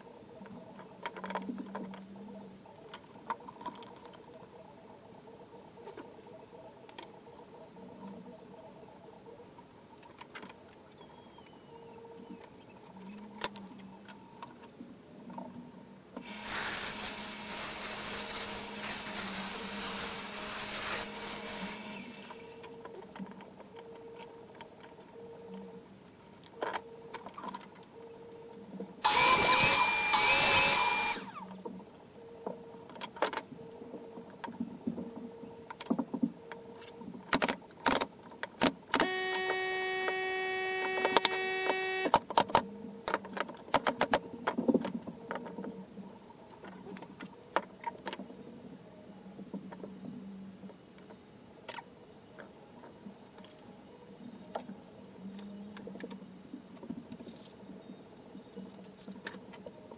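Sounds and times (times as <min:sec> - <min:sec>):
wood being rasped: 0:16.2 - 0:22.5
small motor whirring: 0:16.2 - 0:22.8, 0:29.0 - 0:31.6, 0:39.0 - 0:42.2.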